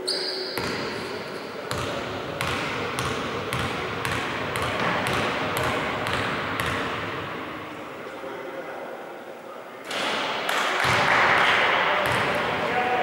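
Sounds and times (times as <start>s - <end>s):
basketball bouncing on court: 0.6s - 0.9s, 1.7s - 7.4s, 12.0s - 12.6s.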